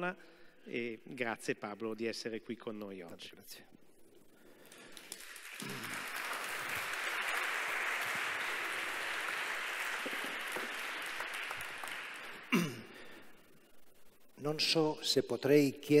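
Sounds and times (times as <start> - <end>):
audience applauding: 4.7 - 13.2.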